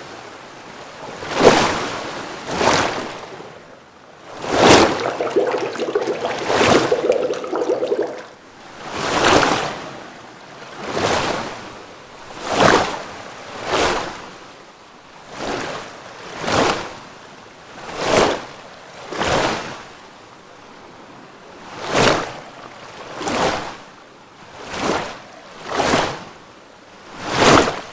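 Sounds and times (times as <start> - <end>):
surges of rushing water: 4.3 - 8.3.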